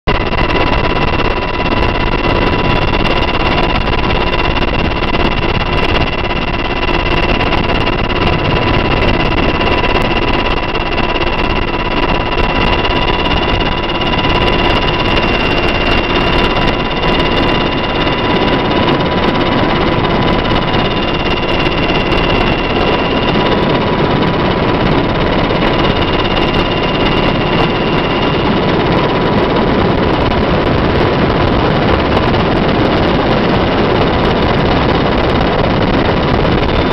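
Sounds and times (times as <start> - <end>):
helicopter rotor rush: 0.0 - 36.9
high turbine whines: 0.1 - 36.9.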